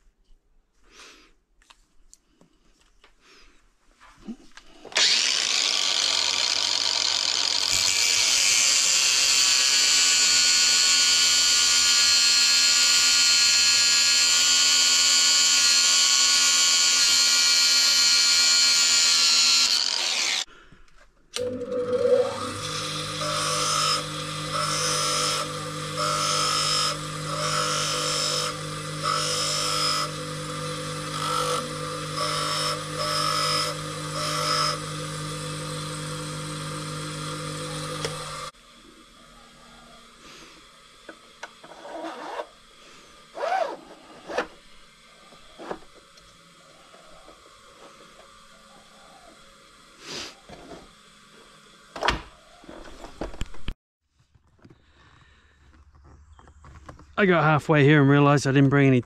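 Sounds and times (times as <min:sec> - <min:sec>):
bench grinder humming: 0:04.8 - 0:20.5, 0:21.4 - 0:53.3
angle grinder cutting metal: 0:04.9 - 0:20.5, 0:21.4 - 0:52.0.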